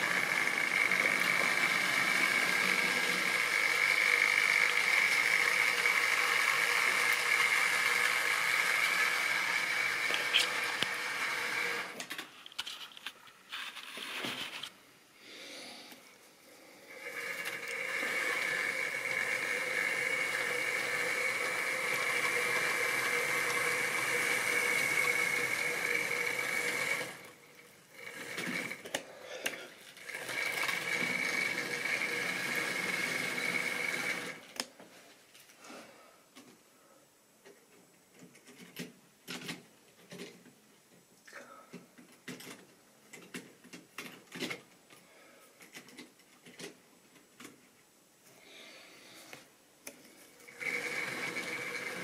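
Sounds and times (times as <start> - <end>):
model train running on track: 0.0 - 11.8, 17.1 - 27.3, 30.1 - 34.4.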